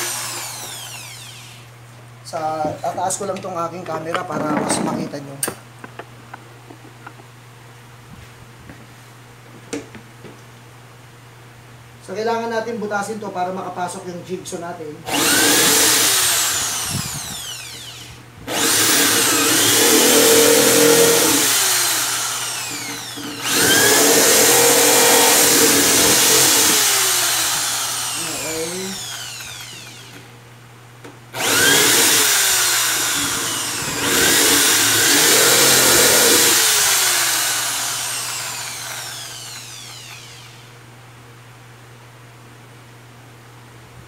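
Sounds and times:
electric drill boring: 0:00.0 - 0:01.7, 0:15.1 - 0:30.3, 0:31.4 - 0:40.7.

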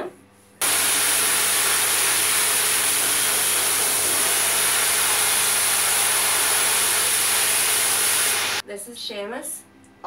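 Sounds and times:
dryer blowing air: 0:00.6 - 0:08.6.

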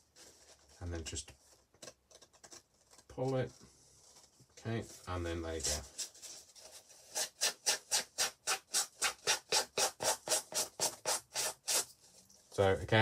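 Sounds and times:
emery board scraping paper: 0:02.9 - 0:12.3.

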